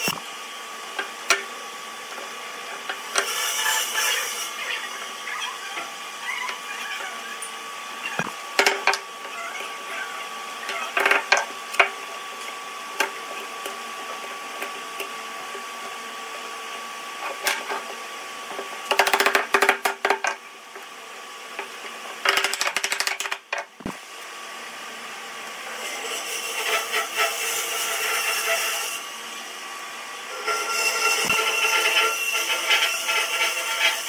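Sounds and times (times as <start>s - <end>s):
workshop machinery whining: 0.0s - 19.8s.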